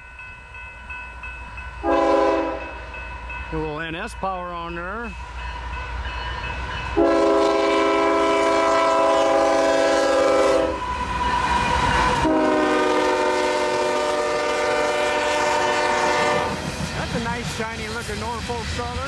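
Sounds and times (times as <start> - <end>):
freight train rumbling: 0.0 - 19.0
locomotive air horn blasts: 1.8 - 2.8, 7.0 - 10.9, 12.2 - 16.6.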